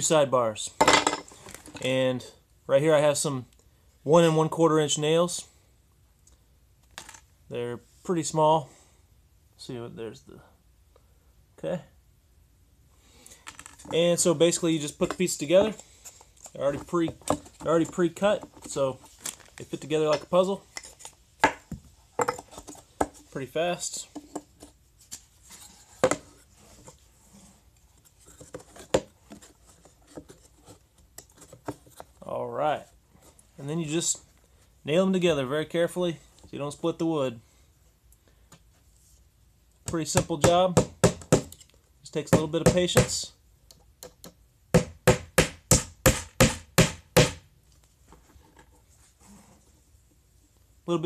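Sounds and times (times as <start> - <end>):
hammer tapping nails into wood: 40.2 - 41.6.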